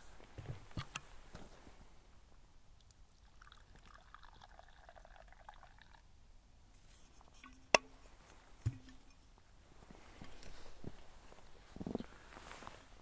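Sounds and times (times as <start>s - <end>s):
liquid pouring into a cup: 3.1s - 6.1s.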